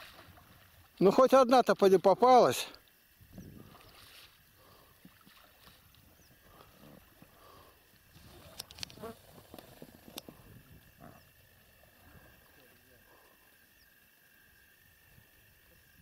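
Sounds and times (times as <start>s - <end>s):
splashes from boat pole: 3.6s - 4.4s, 5.0s - 5.9s.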